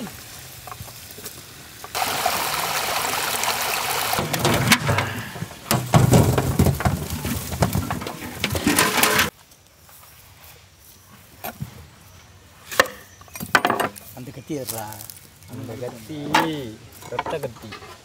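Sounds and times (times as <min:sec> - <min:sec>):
water running and dripping: 0:00.0 - 0:07.5.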